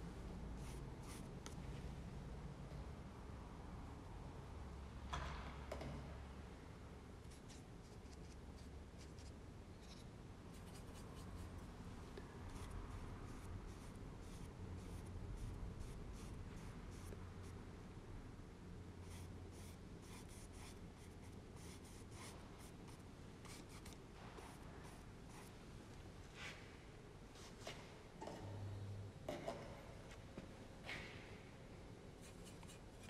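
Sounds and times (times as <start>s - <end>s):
low room hum: 0.0s - 33.0s
paintbrush scratching on paper: 0.6s - 1.3s.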